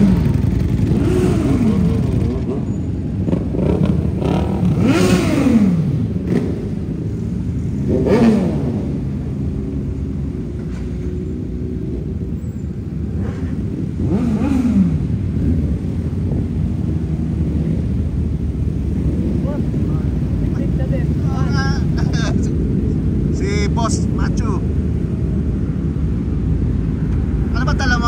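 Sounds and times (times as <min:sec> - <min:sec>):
motorcycle engine revving: 0:00.0 - 0:26.5
motorcycle engines rumbling: 0:00.0 - 0:28.0.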